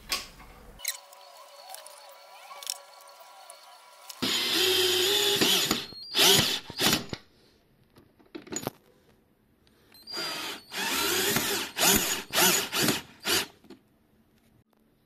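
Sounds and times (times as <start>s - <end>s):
power drill driving screws: 2.6s - 7.2s, 10.1s - 13.5s.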